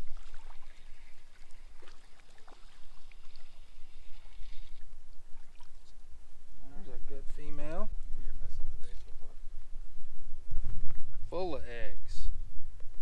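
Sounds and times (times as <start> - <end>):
water lapping against hull: 0.0 - 6.2
wind rumble on microphone: 3.7 - 13.0.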